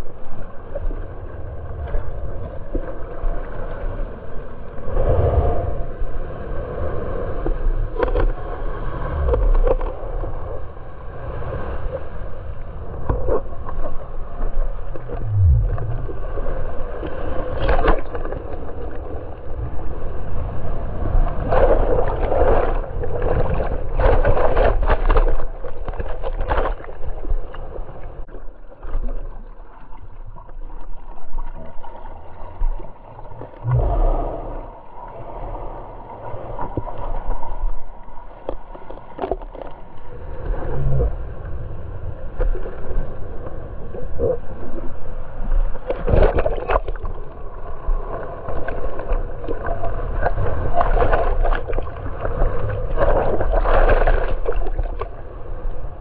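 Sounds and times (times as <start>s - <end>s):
paddling splashes: 14.5s - 19.3s, 20.9s - 35.5s, 45.8s - 55.2s.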